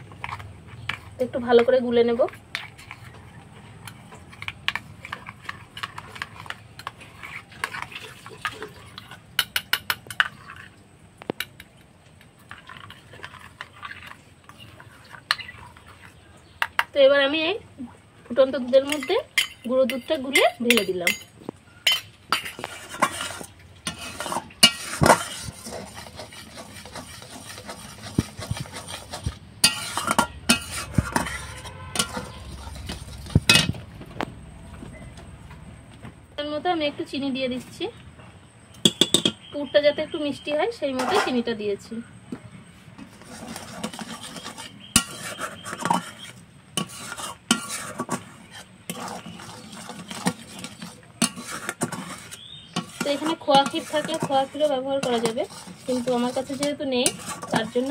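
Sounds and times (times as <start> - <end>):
spoon stirring and scraping pan: 0.0 - 37.8, 38.8 - 57.9
spoon clinking against pan: 18.9 - 22.7, 38.8 - 39.4.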